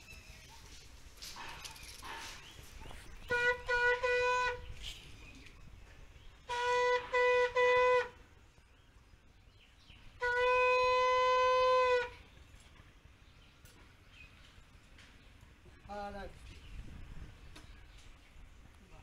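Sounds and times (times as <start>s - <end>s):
conch shell blasts: 6.5s - 8.2s, 10.2s - 12.2s.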